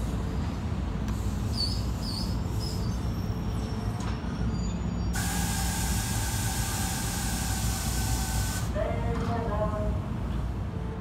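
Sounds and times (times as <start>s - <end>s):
train low rumble: 0.0s - 11.0s
compressed air hiss: 5.2s - 8.7s.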